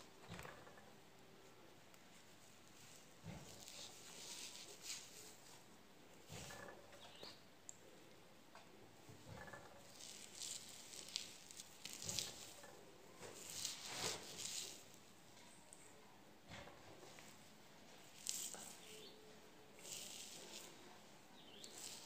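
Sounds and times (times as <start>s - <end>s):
hands rubbing through hair: 2.7s - 5.6s, 13.2s - 15.0s, 19.8s - 20.8s.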